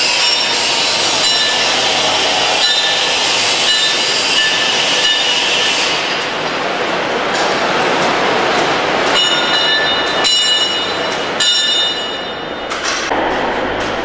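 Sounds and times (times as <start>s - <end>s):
angle grinder grinding steel: 0.0s - 6.1s.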